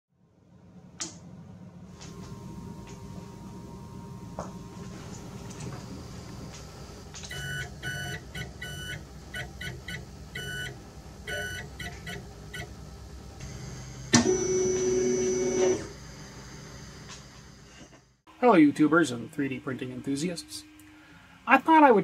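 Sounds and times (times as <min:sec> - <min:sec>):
low steady hum: 0:00.2 - 0:22.0
morse code beeps: 0:07.3 - 0:10.7, 0:11.3 - 0:12.7.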